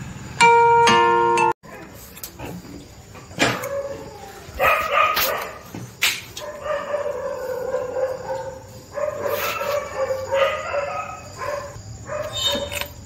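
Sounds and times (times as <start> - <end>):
dog howling and whining: 3.4 - 4.9.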